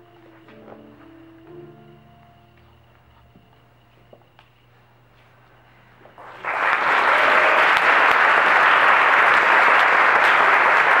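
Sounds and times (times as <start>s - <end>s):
audience applauding: 6.2s - 11.0s.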